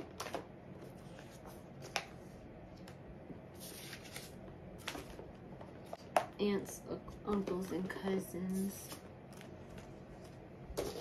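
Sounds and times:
paper rustling: 0:03.6 - 0:05.3.

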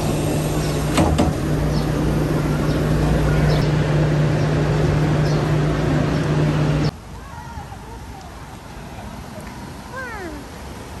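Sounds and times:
low mechanical hum: 0:00.0 - 0:06.9.

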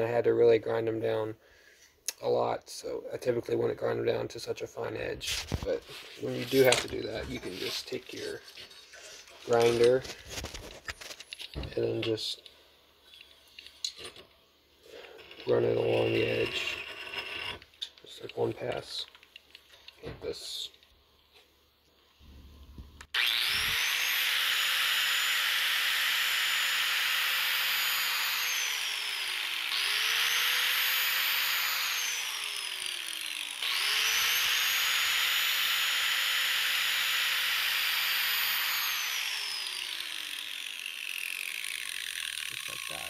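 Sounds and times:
electric grinder on steel blade: 0:05.8 - 0:10.5, 0:14.9 - 0:17.8, 0:23.1 - 0:43.0.

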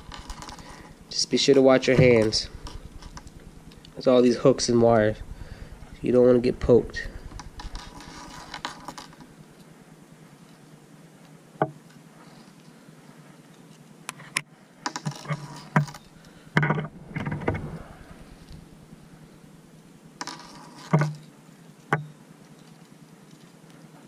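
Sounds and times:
sharp ticks: 0:00.0 - 0:09.7.

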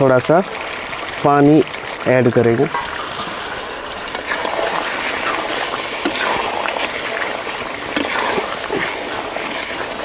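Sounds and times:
curry sizzling and sloshing: 0:00.0 - 0:10.0
spatula stirring: 0:04.1 - 0:10.0.

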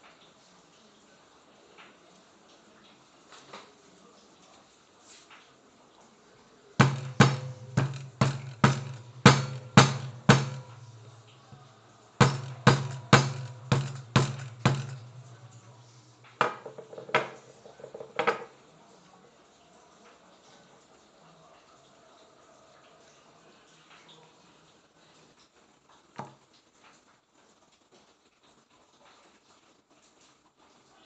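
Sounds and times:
stone pestle knocking on seed husk: 0:06.8 - 0:11.6, 0:12.2 - 0:18.4.

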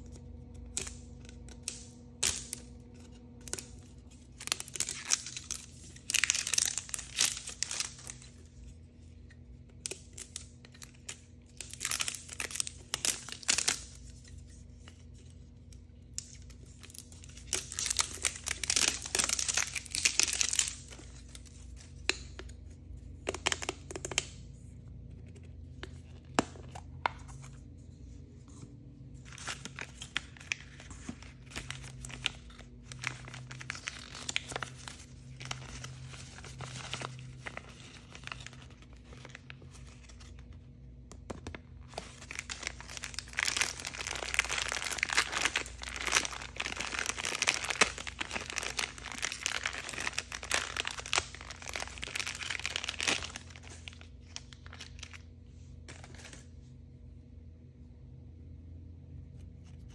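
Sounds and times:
plastic bag crinkling and tearing: 0:03.4 - 0:08.5, 0:09.8 - 0:14.2, 0:16.2 - 0:22.0, 0:29.2 - 0:40.5, 0:41.8 - 0:55.2.

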